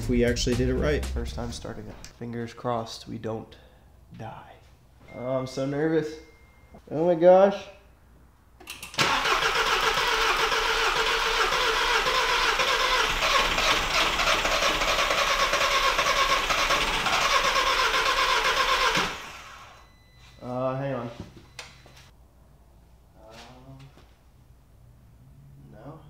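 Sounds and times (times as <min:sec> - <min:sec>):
car engine cranking on starter: 0:08.6 - 0:19.8.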